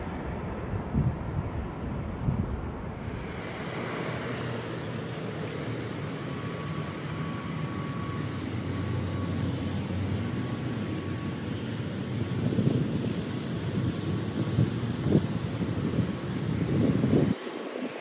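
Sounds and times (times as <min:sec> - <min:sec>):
wind thumping microphone: 0:00.0 - 0:03.6
distant jet engines rumbling: 0:00.0 - 0:18.0.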